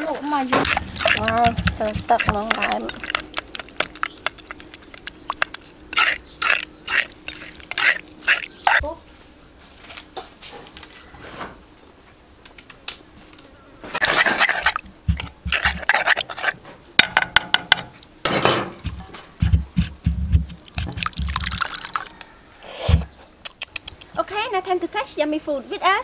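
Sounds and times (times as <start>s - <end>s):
sauce sloshing and scraping: 0.5s - 8.8s, 14.0s - 16.6s, 18.8s - 22.2s
pestle knocking in mortar: 0.6s - 5.6s, 14.7s - 16.0s, 17.0s - 17.9s, 18.5s - 21.7s.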